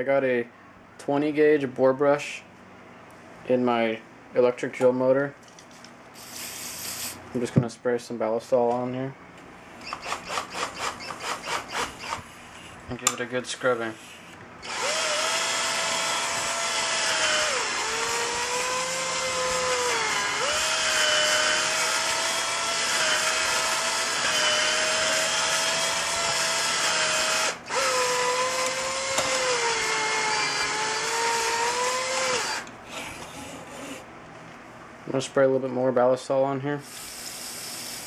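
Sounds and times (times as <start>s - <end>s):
electric drill motor whine: 9.8s - 12.3s, 14.2s - 34.0s.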